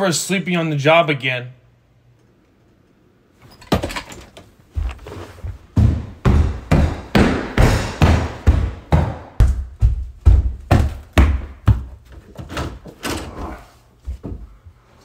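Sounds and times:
footsteps on hardwood floor: 0:04.6 - 0:12.5, 0:14.0 - 0:14.9.

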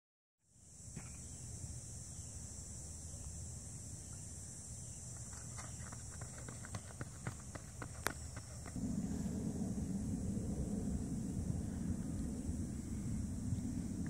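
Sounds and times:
high insect drone: 0:00.4 - 0:14.0
low outdoor rumble: 0:00.7 - 0:14.0
running footsteps on a track: 0:05.1 - 0:08.8.

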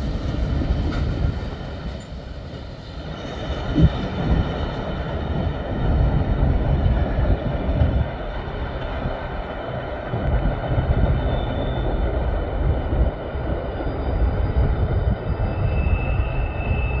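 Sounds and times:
freight train wheels rumbling: 0:00.0 - 0:17.0.

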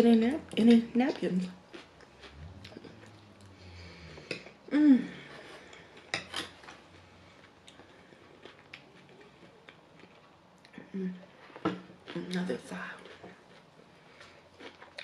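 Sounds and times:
chewing: 0:01.7 - 0:04.6, 0:05.2 - 0:15.0
person humming: 0:04.7 - 0:05.2.

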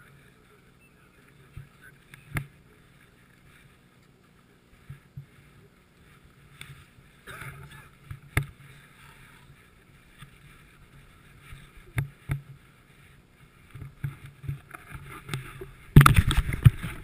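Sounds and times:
knocks and rubbing on camera: 0:13.7 - 0:17.0.

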